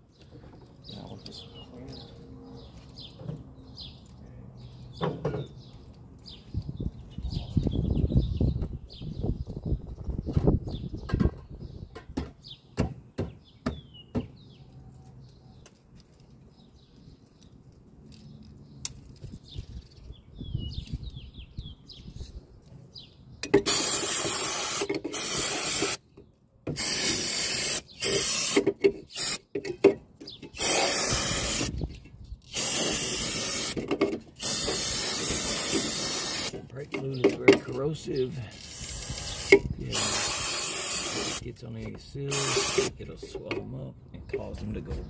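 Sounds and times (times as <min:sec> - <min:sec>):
aerosol spray hissing: 0:23.7 - 0:26.0, 0:26.8 - 0:29.4, 0:30.6 - 0:31.7, 0:32.5 - 0:33.8, 0:34.4 - 0:36.5, 0:38.8 - 0:41.4, 0:42.3 - 0:42.9.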